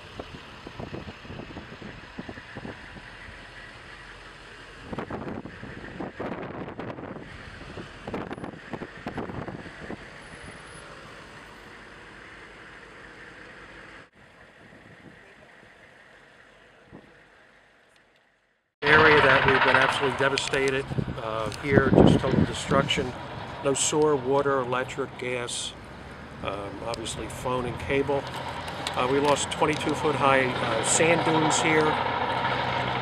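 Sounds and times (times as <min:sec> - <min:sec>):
wind buffeting microphone: 0:00.0 - 0:03.4, 0:04.8 - 0:10.2, 0:19.0 - 0:24.5
vehicle road and engine noise: 0:00.0 - 0:33.0.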